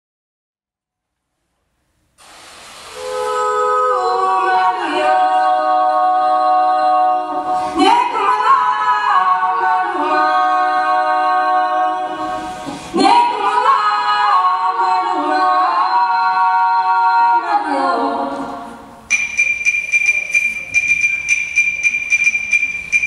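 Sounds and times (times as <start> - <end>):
choir singing held chords: 2.9 - 19.8.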